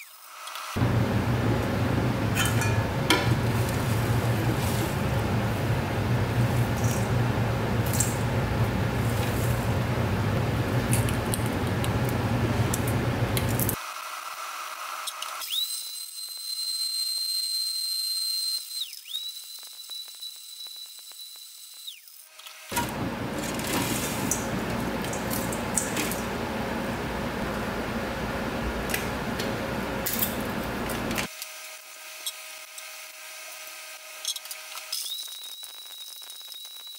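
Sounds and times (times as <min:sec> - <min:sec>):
high whistle: 0:15.4 - 0:22.0
blender grinding fragments: 0:34.2 - 0:36.9.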